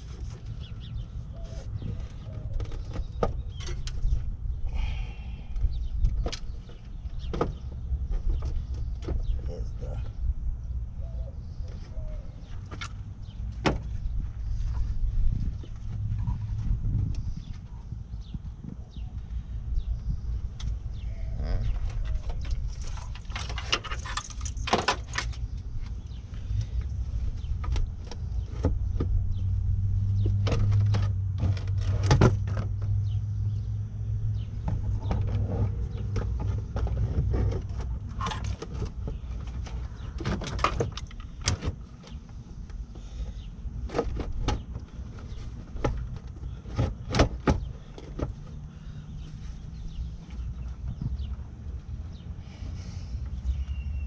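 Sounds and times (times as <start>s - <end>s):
steady low rumble: 3.4s - 30.6s.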